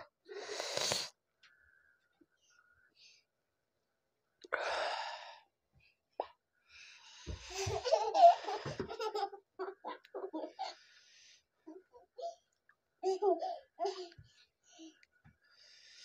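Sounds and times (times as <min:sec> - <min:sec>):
man blowing hissing breath: 0:00.3 - 0:01.1.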